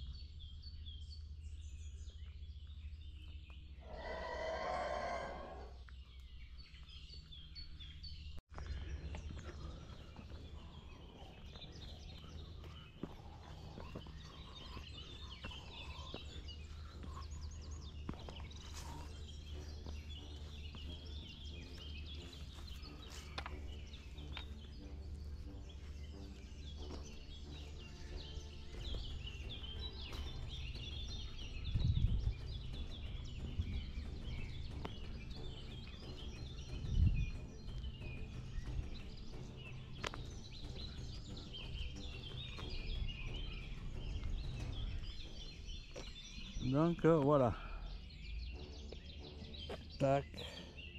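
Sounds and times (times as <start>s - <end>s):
steady low rumble: 0.0s - 3.8s, 5.7s - 47.2s
small birds chirping: 0.0s - 50.9s.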